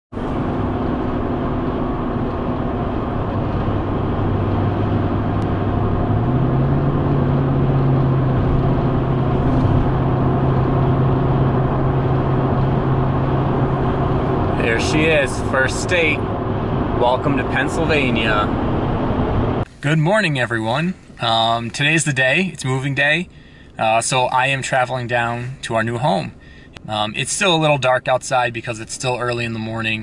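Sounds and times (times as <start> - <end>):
tyre and road noise: 0.1 - 21.6
truck engine hum: 0.1 - 27.3.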